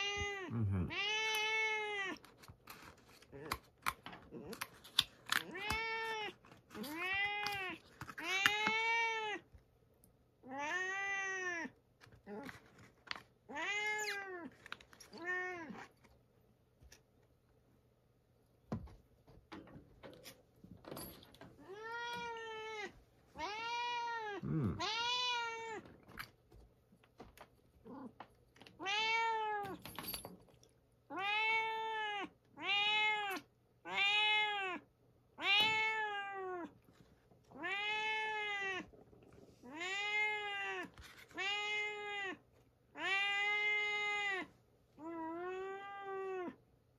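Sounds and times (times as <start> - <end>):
cat meowing: 0.0 - 2.2, 10.4 - 12.4, 21.6 - 25.9, 28.8 - 29.8, 31.1 - 36.8, 37.5 - 38.9, 39.6 - 46.6.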